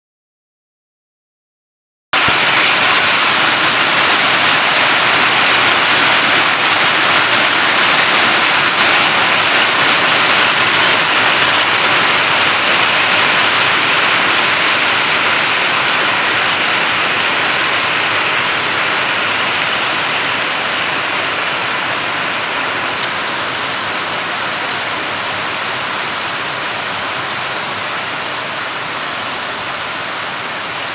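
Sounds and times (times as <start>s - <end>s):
heavy rain on metal roofing: 2.2s - 30.9s.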